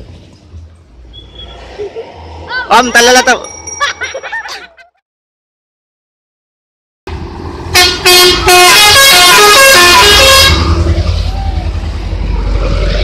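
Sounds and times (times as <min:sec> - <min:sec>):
truck engine passing: 0:00.0 - 0:04.1, 0:07.1 - 0:13.0
musical air horn tune: 0:07.7 - 0:10.8.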